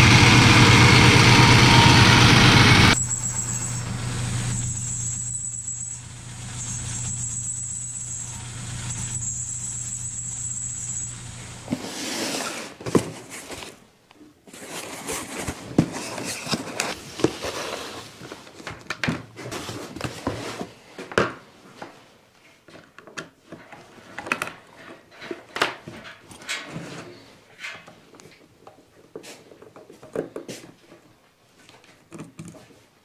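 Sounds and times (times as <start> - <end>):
lathe motor humming: 0.0 - 11.7.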